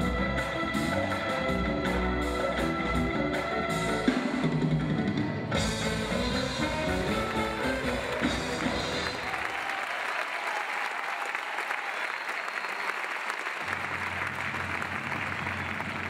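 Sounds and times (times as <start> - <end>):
drum-led band music: 0.0 - 9.5
audience applauding: 5.9 - 16.0.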